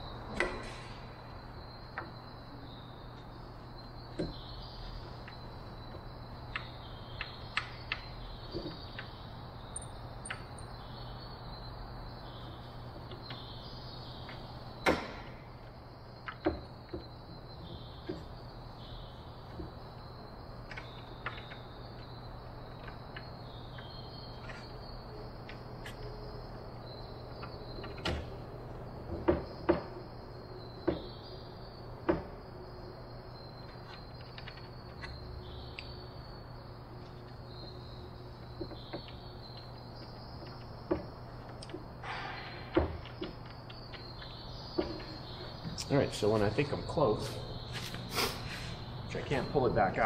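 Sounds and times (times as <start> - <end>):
wooden frame clicking and knocking: 16.2 - 17.2, 29.0 - 30.1, 38.4 - 45.8.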